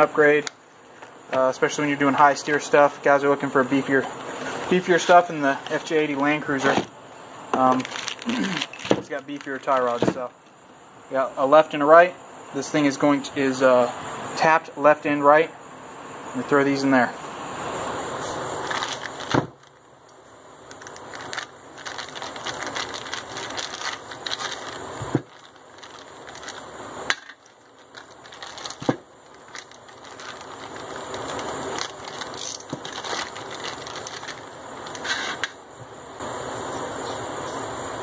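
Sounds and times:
plastic bags crinkling: 7.6 - 10.3, 18.6 - 19.8, 20.6 - 35.4.

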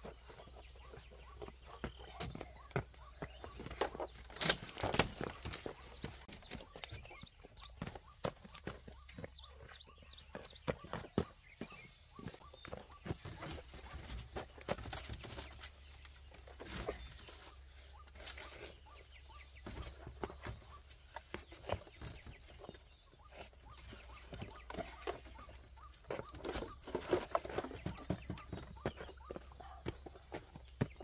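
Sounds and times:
bamboo slats knocking and clicking: 3.8 - 6.3.

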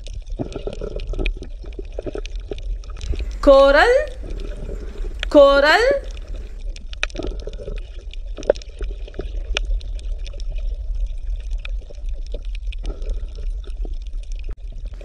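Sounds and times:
underwater low rumble: 3.0 - 6.6.

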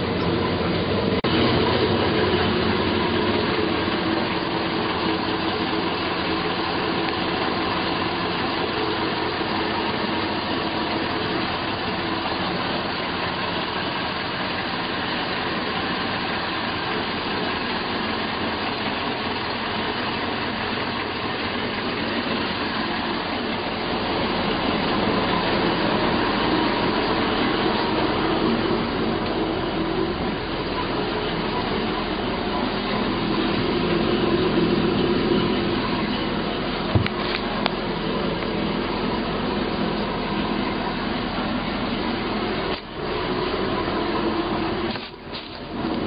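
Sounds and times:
steady mechanical drone: 0.0 - 46.0.

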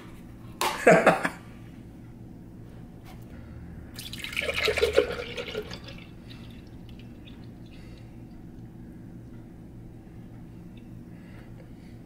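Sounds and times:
milk pouring into blender jar: 4.0 - 7.5.

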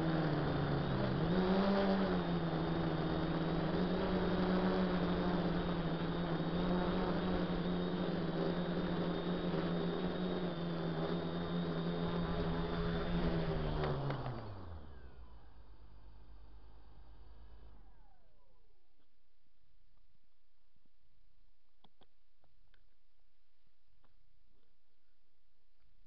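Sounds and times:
quadcopter motors humming: 0.0 - 19.2.

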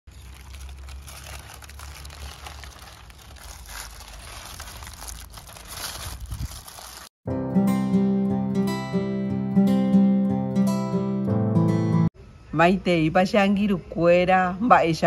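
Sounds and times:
aluminium foil crinkling: 0.1 - 7.1.

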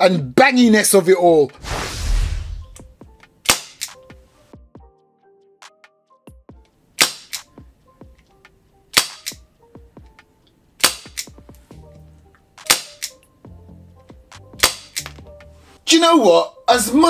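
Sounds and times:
airsoft revolver shots: 3.4 - 4.1, 7.0 - 7.5, 8.9 - 9.4, 10.8 - 11.4, 12.6 - 13.2, 14.6 - 15.2.

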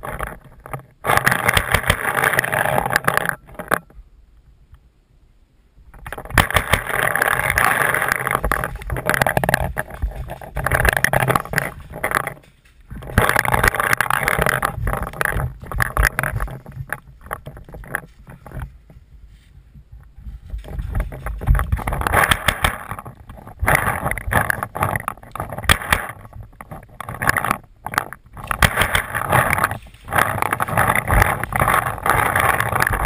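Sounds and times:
clothing and gear rustle: 7.4 - 27.6.

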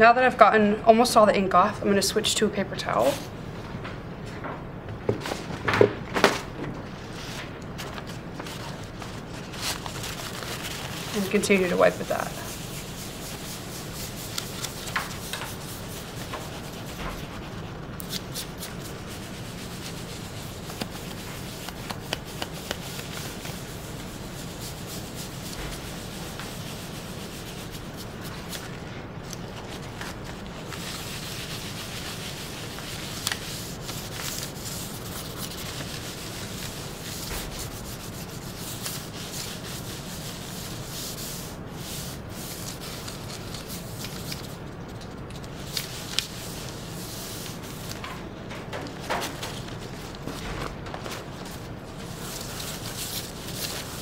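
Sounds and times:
paper towel rubbing on metal plate: 8.4 - 28.8, 29.5 - 44.6, 48.8 - 54.0.

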